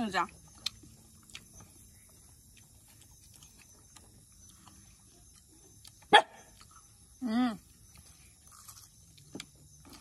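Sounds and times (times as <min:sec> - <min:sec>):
dog barking: 0:06.1 - 0:06.5.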